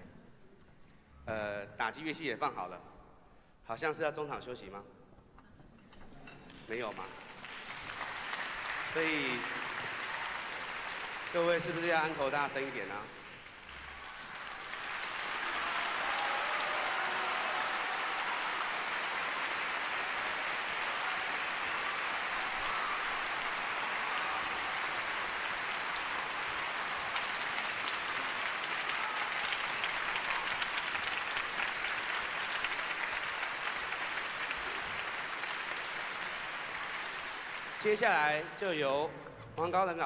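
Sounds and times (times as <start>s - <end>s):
audience applauding: 6.9s - 38.6s.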